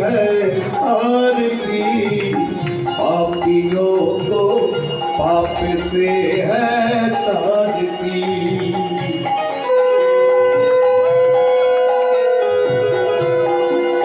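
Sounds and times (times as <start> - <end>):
devotional singing: 0.0 - 9.1
bells ringing: 0.0 - 14.0.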